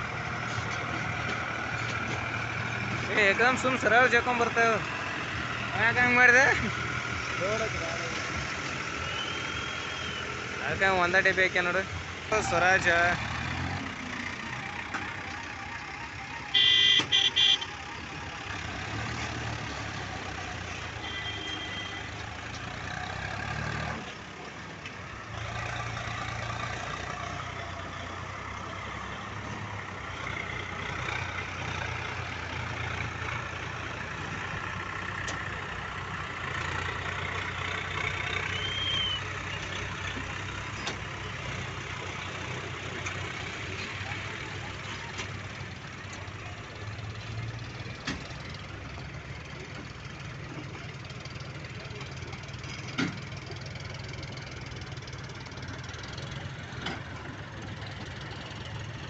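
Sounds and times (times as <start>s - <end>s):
diesel tractor engines running: 0.0s - 59.0s
horn blasts: 16.4s - 17.8s, 21.0s - 22.1s.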